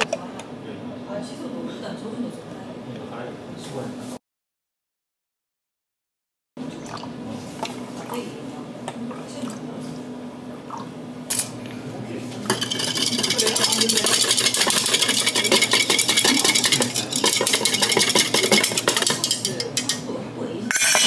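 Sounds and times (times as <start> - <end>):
metal utensil clinking on dish: 12.5 - 20.1, 20.7 - 21.0.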